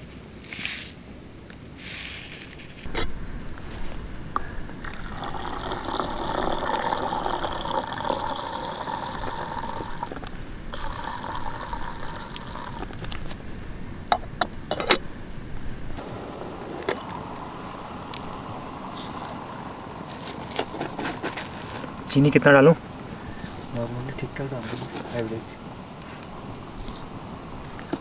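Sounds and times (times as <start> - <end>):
milk pouring into kettle: 4.8 - 13.1.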